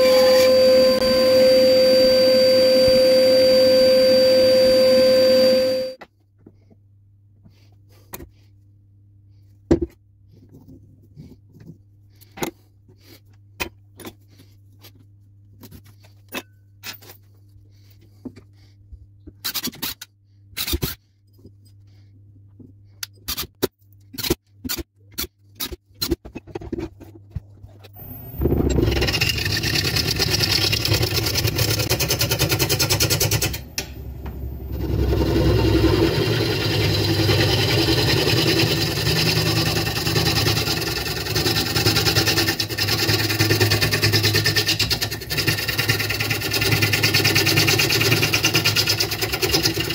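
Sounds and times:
lathe gouge cutting wood: 0.0s - 6.0s, 28.4s - 49.9s.

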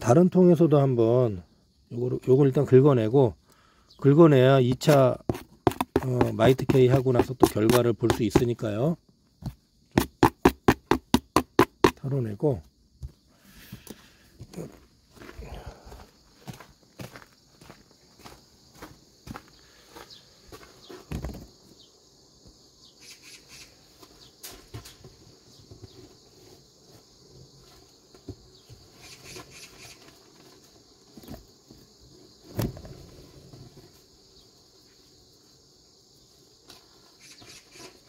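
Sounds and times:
insects chirring: 0.0s - 38.0s
beehive handling knocks and scrapes: 4.5s - 14.6s, 20.5s - 21.7s, 23.9s - 35.3s, 36.4s - 38.0s.

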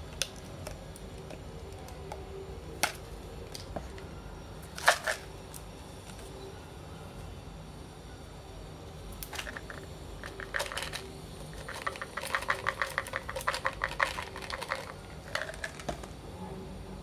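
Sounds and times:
capsules rattling in plastic bottle: 4.8s - 5.3s, 9.3s - 16.0s.

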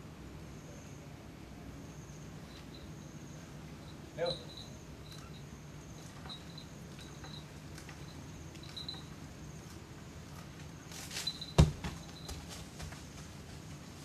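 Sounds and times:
insects chirping in trills: 0.0s - 12.8s
rustling and cracking of palm fronds: 9.6s - 14.0s.

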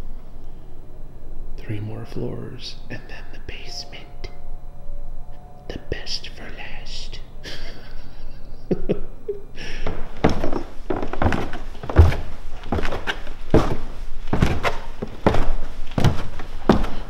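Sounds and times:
footsteps thudding: 9.8s - 17.0s.

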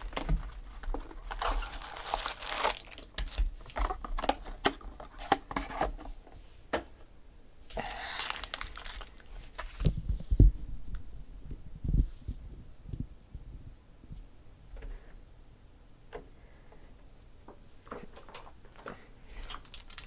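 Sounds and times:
foil packs crinkling: 0.0s - 5.4s, 7.8s - 9.9s, 19.4s - 20.0s.

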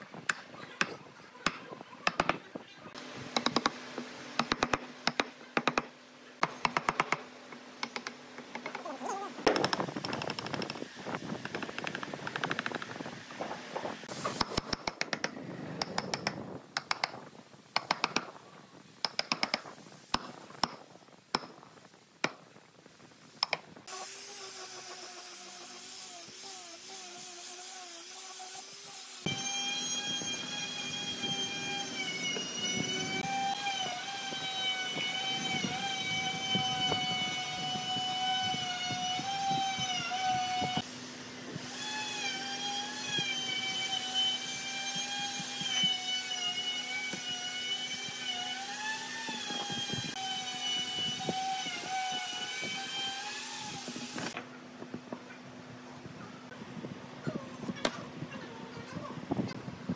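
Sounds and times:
power tool whining: 23.9s - 40.9s, 41.6s - 54.4s.

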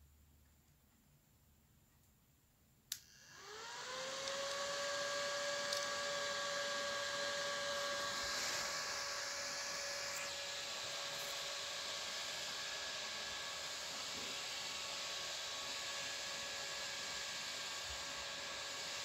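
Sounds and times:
hiss: 7.7s - 12.6s.

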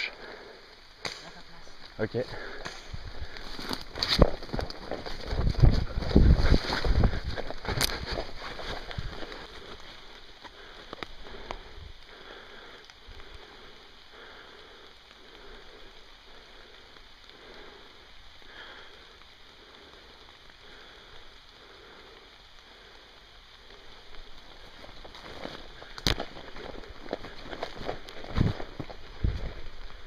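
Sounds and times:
rain falling on leaves: 0.0s - 30.0s
footsteps through wet undergrowth: 1.6s - 12.2s, 24.1s - 30.0s.

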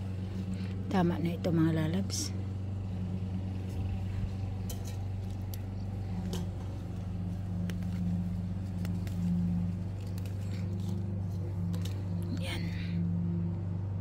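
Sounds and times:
motor humming: 0.0s - 14.0s
faint clicks and rustles: 3.5s - 12.8s.

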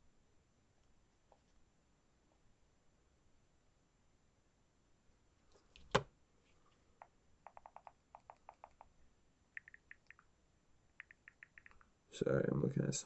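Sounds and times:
smartphone typing clicks: 7.4s - 8.9s, 9.6s - 10.2s, 11.0s - 11.8s.

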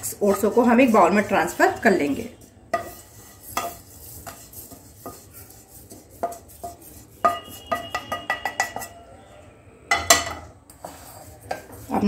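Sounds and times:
spatula scraping pan: 0.0s - 9.1s, 9.9s - 12.0s
ringing taps on bowl: 7.2s - 9.0s.

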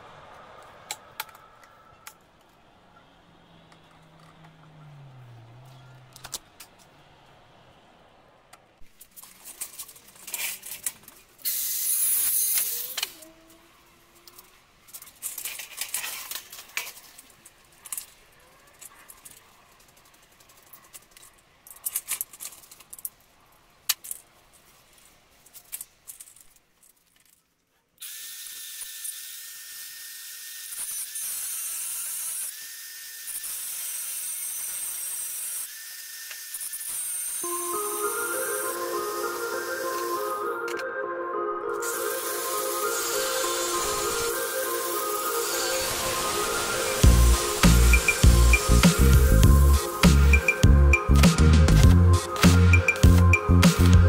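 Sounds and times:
parts being handled: 8.5s - 11.5s, 14.2s - 27.7s
angle grinder on steel: 41.8s - 50.1s.

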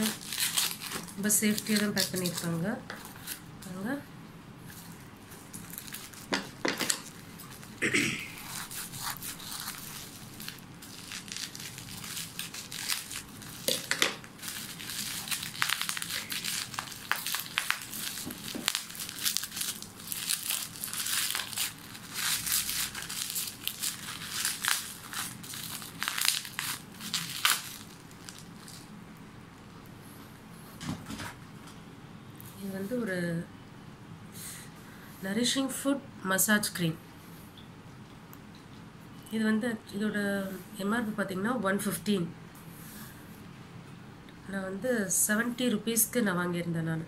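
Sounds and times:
scissors cutting plastic wrap: 0.0s - 3.4s, 8.4s - 28.9s
plastic wrap crinkling: 0.0s - 3.5s, 4.7s - 7.8s, 8.4s - 29.0s.

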